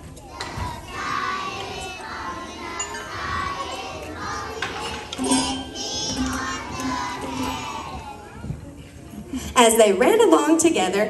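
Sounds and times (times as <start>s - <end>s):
children's voices in unison: 0.0s - 8.6s
drums struck: 0.4s - 8.4s
tambourines jingling: 1.2s - 8.2s.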